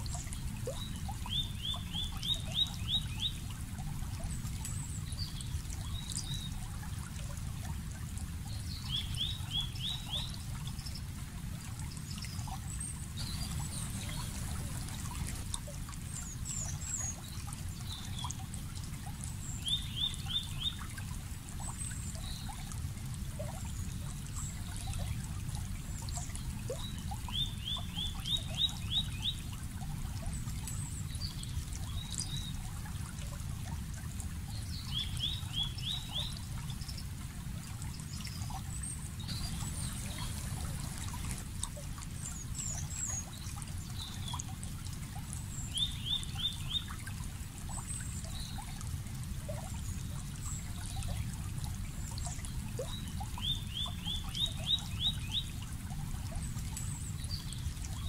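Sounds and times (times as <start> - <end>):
water trickling: 0.0 - 58.0
faint bird chirps: 13.2 - 15.4, 39.3 - 41.4
songbird singing: 13.2 - 15.4, 39.2 - 41.4.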